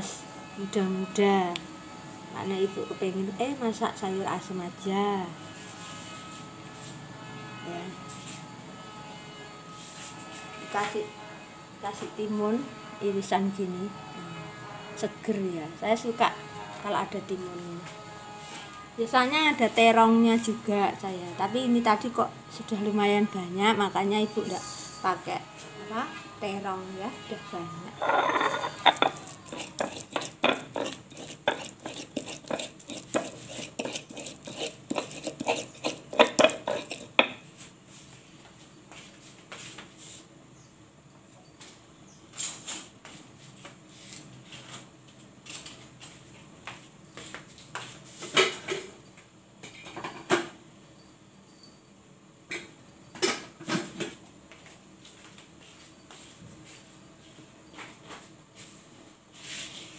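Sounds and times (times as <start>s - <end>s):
metal cookware clattering: 28.0s - 31.6s
dishes and utensils clinking: 28.0s - 37.4s.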